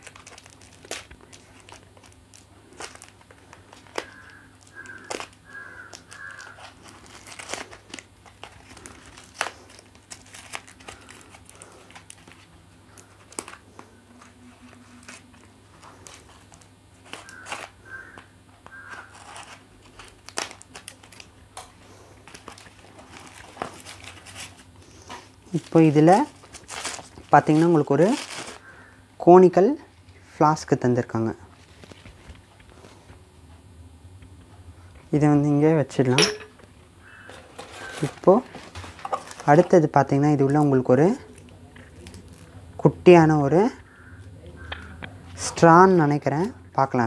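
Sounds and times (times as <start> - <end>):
paper and plastic wrapping crinkling: 0.0 - 28.9, 31.5 - 33.2, 37.1 - 42.9.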